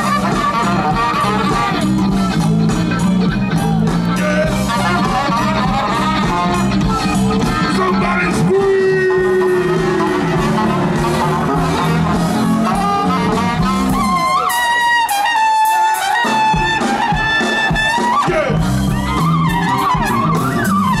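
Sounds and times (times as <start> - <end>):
trumpet solo: 0.0 - 2.7, 4.1 - 21.0
bass line: 0.0 - 15.4, 16.1 - 21.0
funk band playing: 0.0 - 21.0.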